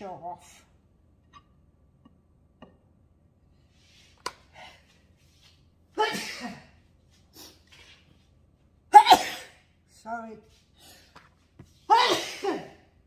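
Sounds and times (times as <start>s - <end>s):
woman sneezing: 6.0s - 6.7s, 8.9s - 9.6s, 11.9s - 12.9s.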